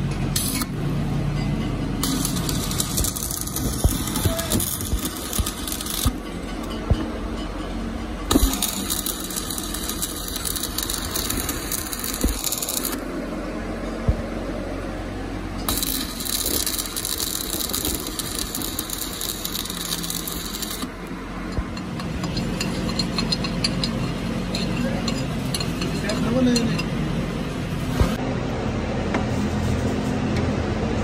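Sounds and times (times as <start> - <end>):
arc welding crackling: 0.0 - 0.8, 2.0 - 6.8, 8.3 - 13.1, 15.7 - 21.1.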